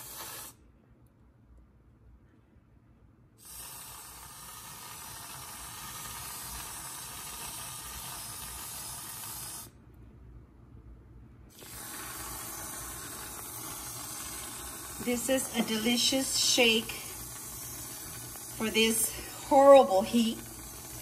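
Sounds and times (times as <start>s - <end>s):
aerosol can hissing: 0.0s - 0.6s, 3.4s - 9.7s, 11.5s - 21.0s.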